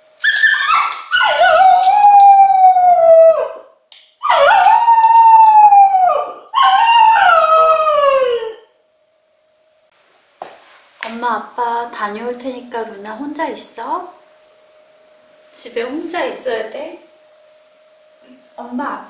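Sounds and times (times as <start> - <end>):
dog howling: 0.2 - 8.7.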